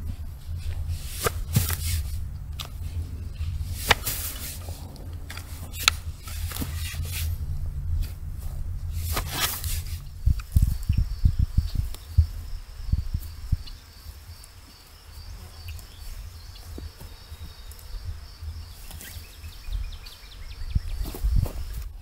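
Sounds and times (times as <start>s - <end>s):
soft thuds of peat sods: 0.0s - 7.4s, 8.0s - 13.7s, 20.9s - 22.0s
birds chirping: 0.0s - 22.0s.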